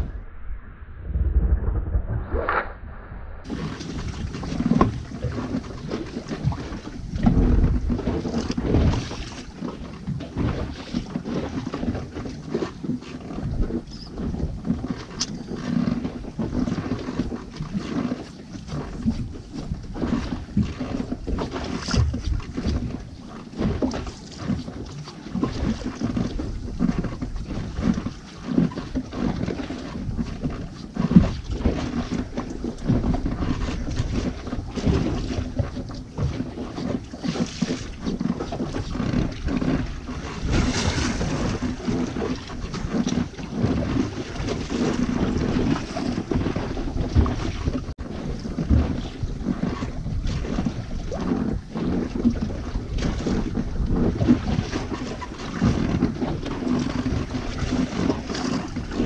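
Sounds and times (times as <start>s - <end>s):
wind buffeting microphone: 0.0s - 59.0s.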